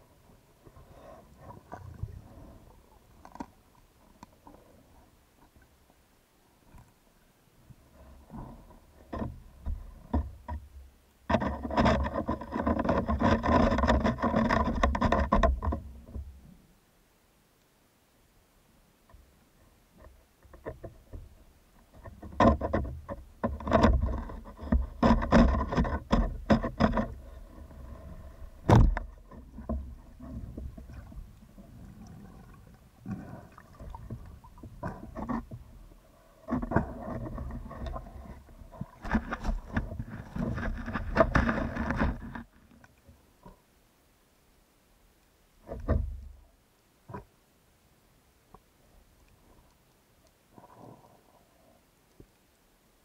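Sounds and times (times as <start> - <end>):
underwater clicking and knocking: 9.0 - 16.3, 20.0 - 43.6
knocks and rubbing: 22.0 - 27.4.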